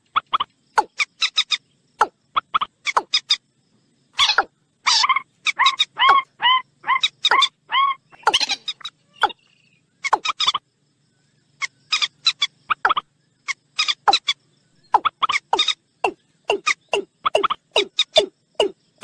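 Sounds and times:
water bird calls: 0:04.2 - 0:10.6.

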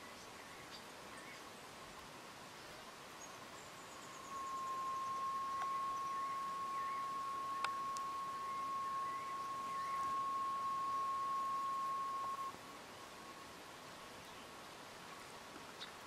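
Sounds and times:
faint bird chirps: 0:02.6 - 0:13.4
high pure tone: 0:04.0 - 0:12.6
sharp clicks: 0:07.6 - 0:08.1.

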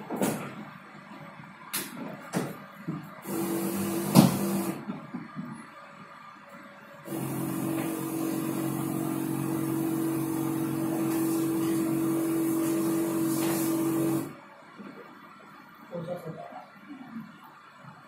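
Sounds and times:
loud machine drone: 0:07.1 - 0:12.2.

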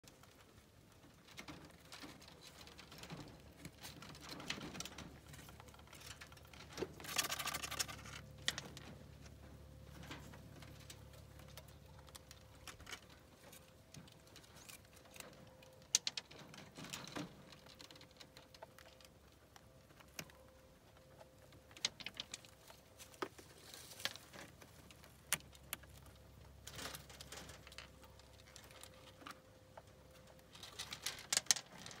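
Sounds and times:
rabbits chewing pellets: 0:00.0 - 0:32.0
rustle: 0:21.8 - 0:29.5, 0:30.2 - 0:32.0.

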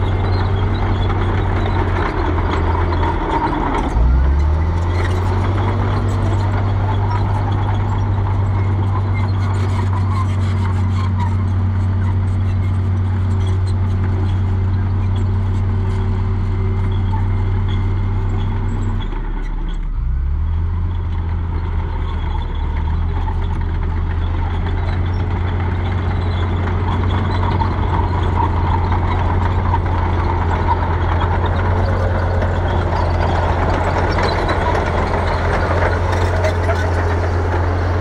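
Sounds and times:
diesel truck engine running: 0:00.0 - 0:38.0.

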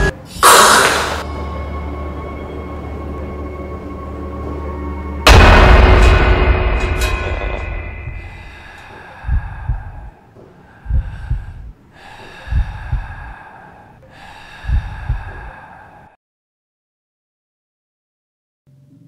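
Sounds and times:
eerie drone: 0:00.0 - 0:16.2
heartbeat thumps: 0:09.2 - 0:10.2, 0:10.8 - 0:11.8, 0:12.4 - 0:13.4, 0:14.6 - 0:15.6.

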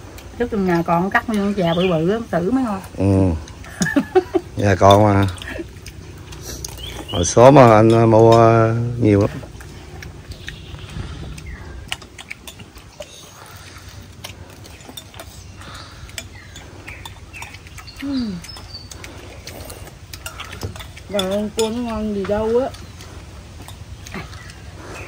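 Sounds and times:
spoons clinking against ceramic bowls: 0:06.8 - 0:09.2, 0:20.1 - 0:24.6.

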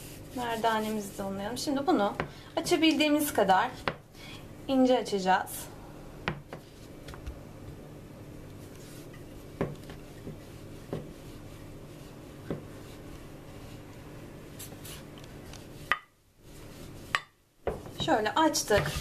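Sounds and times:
rolling pin rubbing on dough: 0:00.0 - 0:04.0, 0:08.5 - 0:19.0
rolling pin knocking on board: 0:06.2 - 0:06.7, 0:09.6 - 0:11.2, 0:17.1 - 0:19.0.

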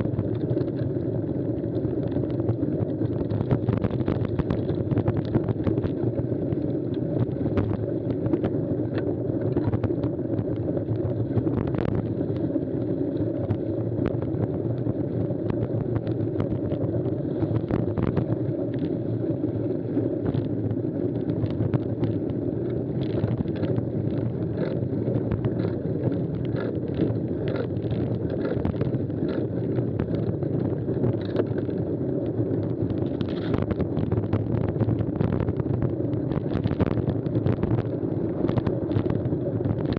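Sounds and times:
wind on camera microphone: 0:00.0 - 0:39.9
bike clicks and rattles: 0:00.2 - 0:01.0, 0:20.2 - 0:32.0, 0:32.6 - 0:35.2.

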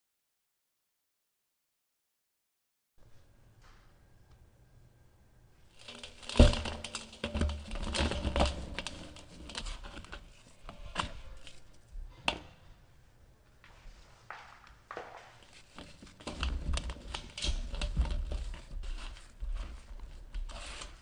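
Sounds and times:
gritty block crunching: 0:05.7 - 0:10.2.

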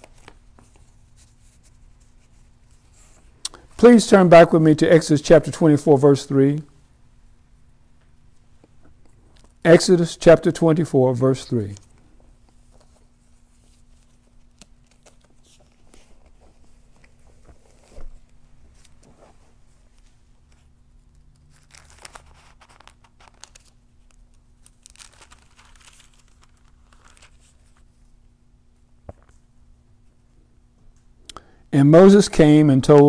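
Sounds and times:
thin pages rustling: 0:00.0 - 0:03.3, 0:12.5 - 0:28.0.

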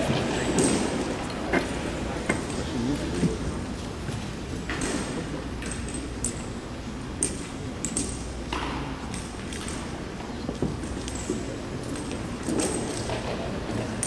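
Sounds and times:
sharp clinks and knocks: 0:07.2 - 0:09.9.

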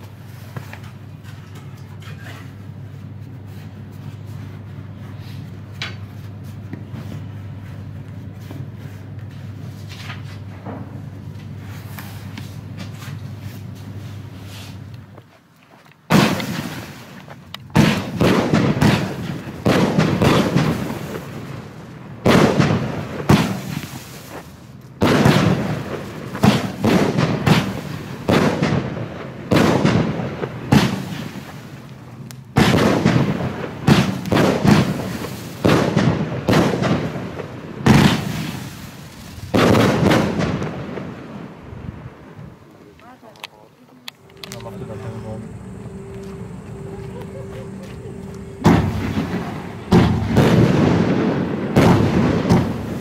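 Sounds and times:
fireworks shots: 0:16.1 - 0:42.6, 0:44.3 - 0:53.0.

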